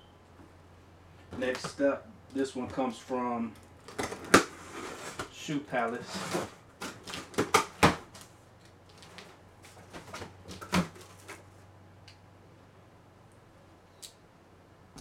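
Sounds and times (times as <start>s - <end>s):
sharp cardboard crack: 6.8s - 8.3s.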